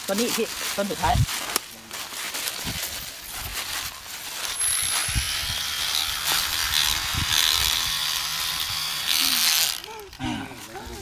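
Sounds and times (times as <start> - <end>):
electric knife buzzing and scraping bark: 2.9 - 10.9.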